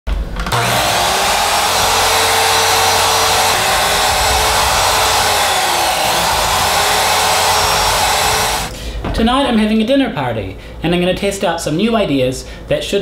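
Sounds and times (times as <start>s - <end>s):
electric saw cutting vegetables: 0.4s - 8.7s.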